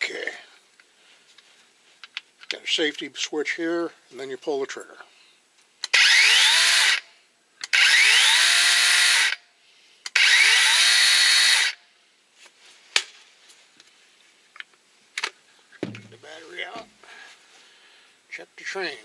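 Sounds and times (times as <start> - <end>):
cordless chainsaw whining: 5.9 - 7.0, 7.6 - 9.4, 10.1 - 11.8.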